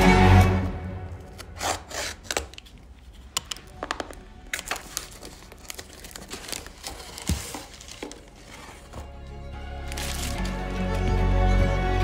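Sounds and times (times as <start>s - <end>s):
soft background music: 0.0s - 12.0s
cardboard box being cut: 1.4s - 2.4s, 6.7s - 9.0s.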